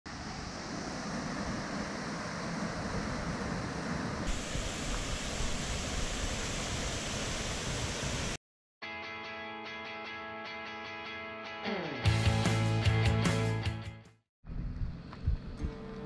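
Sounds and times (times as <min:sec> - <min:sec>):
waterfall roaring: 0:00.1 - 0:08.4.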